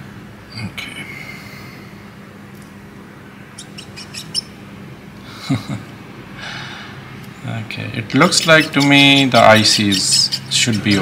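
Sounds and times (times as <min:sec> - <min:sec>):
low steady hum: 0:00.0 - 0:11.0
cotton swab scrubbing circuit board: 0:08.2 - 0:11.0.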